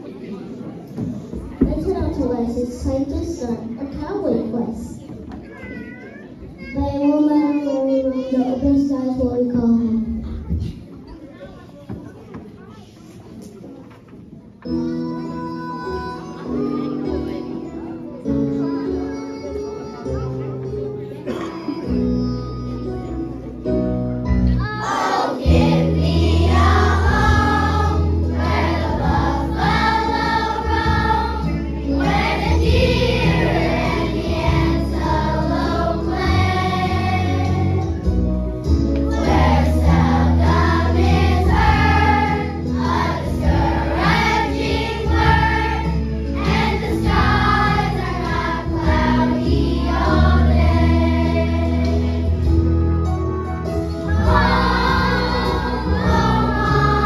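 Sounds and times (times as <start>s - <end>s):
children's choir singing: 24.6s - 53.1s, 53.8s - 57.0s
instrumental accompaniment with bass: 25.4s - 57.0s.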